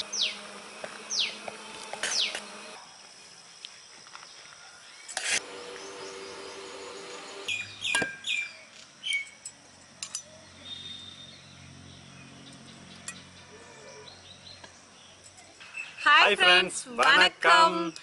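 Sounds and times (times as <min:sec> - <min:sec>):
bird chirps: 0:00.0 - 0:02.4, 0:04.7 - 0:09.4, 0:10.2 - 0:16.0.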